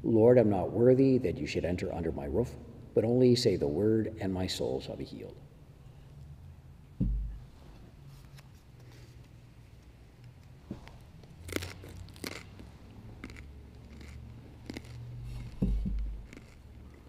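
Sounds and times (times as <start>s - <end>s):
low thump of altar vessels: 7.0s - 7.5s, 15.6s - 16.2s.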